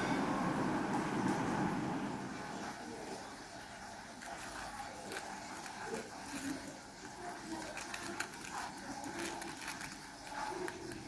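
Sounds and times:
knife crunching through crispy crust: 0:04.2 - 0:11.0.

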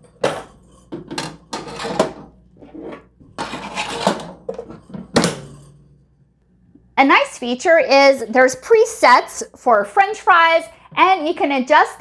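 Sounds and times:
wire shelves rattling and scraping: 0:00.0 - 0:05.8.

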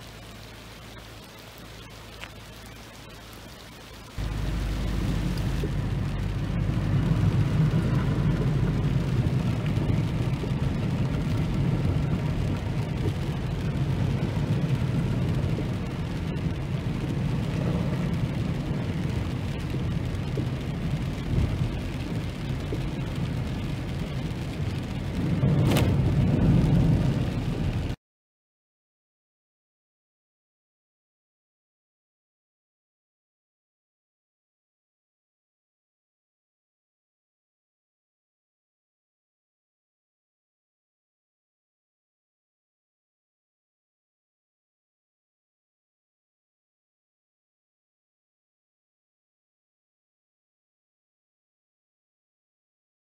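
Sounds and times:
rain on car body: 0:00.0 - 0:28.0
road noise: 0:00.0 - 0:28.0.

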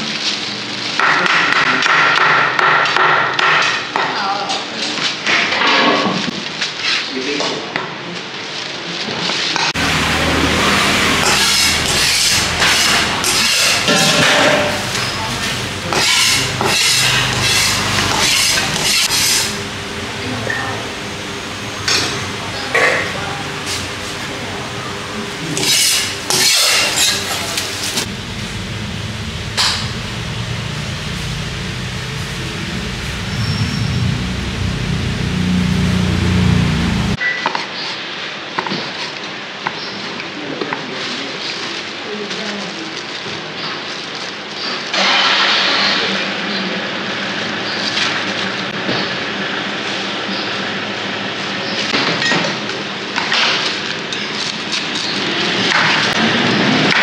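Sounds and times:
hissing bursts: 0:09.8 - 0:37.2
loud steady rushing noise: 0:09.8 - 0:37.2
steady low hum: 0:09.8 - 0:37.2.

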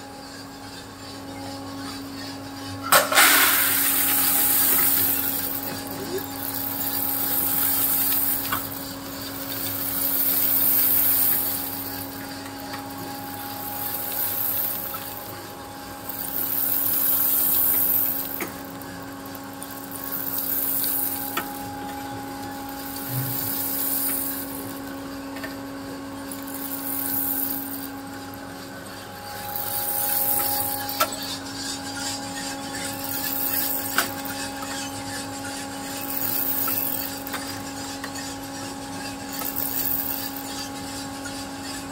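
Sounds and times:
roasting machine motor hum: 0:00.0 - 0:41.9
hiss: 0:22.8 - 0:24.8.

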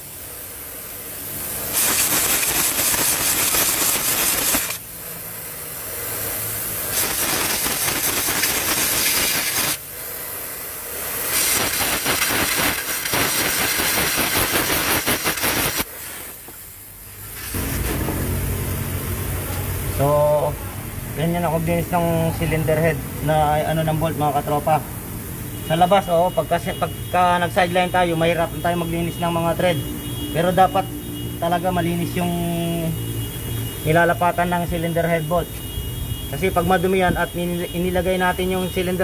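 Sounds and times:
compressed air blow gun hissing: 0:00.0 - 0:20.4.

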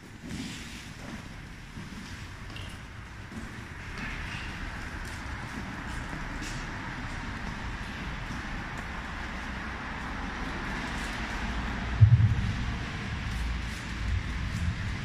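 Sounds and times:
road traffic hum: 0:00.0 - 0:15.0
low thump: 0:12.0 - 0:13.0.

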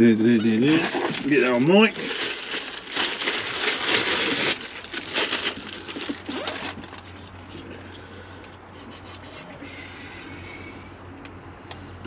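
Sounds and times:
plastic wrapping crinkling: 0:00.6 - 0:07.6.

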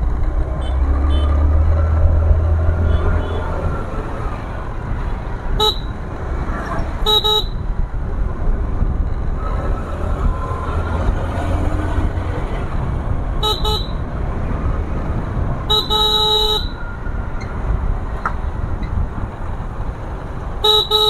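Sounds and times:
low rumble of ride: 0:00.0 - 0:21.0
scooter horn beeping: 0:05.6 - 0:06.0, 0:07.0 - 0:07.7, 0:13.4 - 0:14.0, 0:15.7 - 0:16.8, 0:20.6 - 0:21.0.

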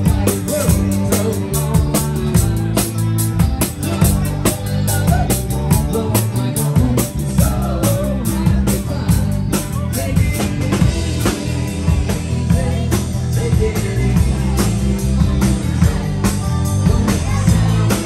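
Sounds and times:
drum kit beat: 0:00.0 - 0:18.0
live rock band playing: 0:00.0 - 0:18.0.

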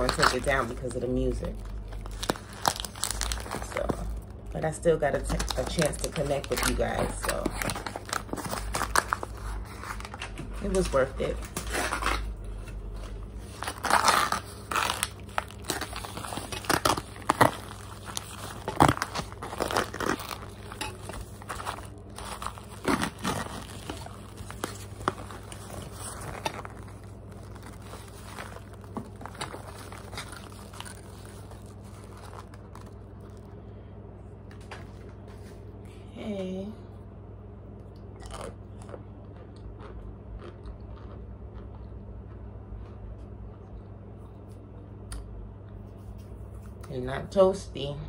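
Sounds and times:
plastic bag crinkling: 0:00.0 - 0:04.4, 0:05.0 - 0:33.5.

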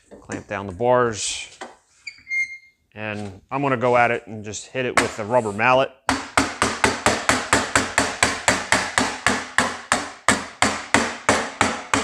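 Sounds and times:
rubber mallet striking sheet steel: 0:06.1 - 0:12.0.

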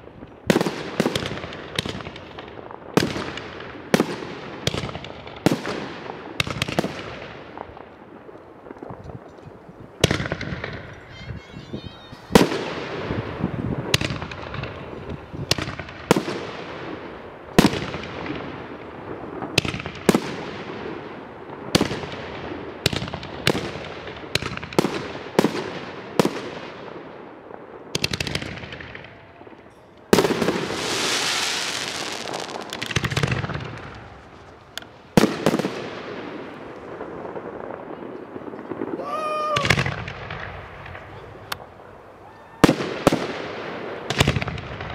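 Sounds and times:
firework bangs with echo: 0:00.0 - 0:09.3, 0:09.9 - 0:29.4, 0:30.1 - 0:41.7, 0:42.6 - 0:44.9
firework whistle: 0:10.7 - 0:13.6
firework hiss: 0:30.3 - 0:35.2.

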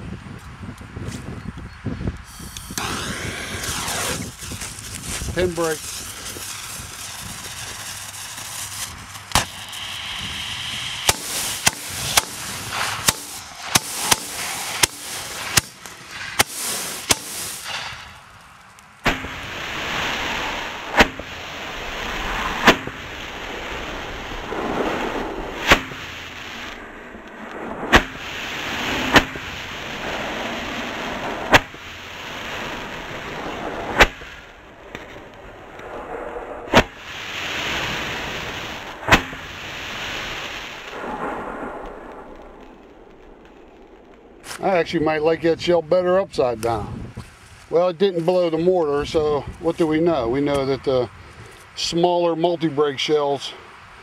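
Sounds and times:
fireworks popping and cracking: 0:02.1 - 0:50.7
loud rush of hissing: 0:02.2 - 0:45.2
firework bangs: 0:02.3 - 0:45.4.

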